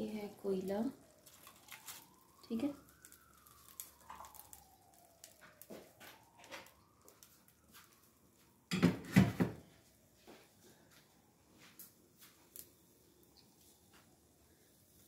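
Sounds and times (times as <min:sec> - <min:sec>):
kitchen things clattering: 0:08.7 - 0:09.6.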